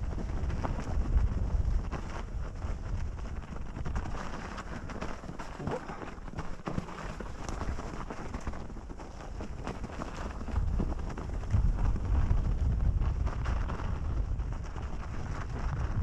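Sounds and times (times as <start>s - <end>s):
wind rumble on microphone: 0.0s - 16.0s
tyres over snow: 0.1s - 16.0s
bike clicks and rattles: 3.5s - 15.7s.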